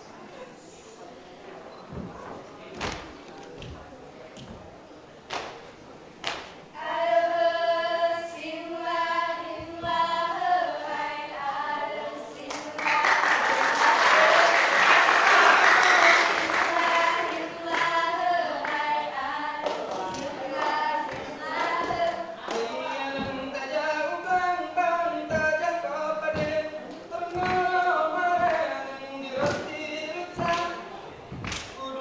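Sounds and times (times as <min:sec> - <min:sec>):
sharp hand slaps: 0:05.3 - 0:05.6, 0:06.2 - 0:06.6, 0:31.4 - 0:31.8
group singing a cappella: 0:06.7 - 0:32.0
applause: 0:12.5 - 0:17.9.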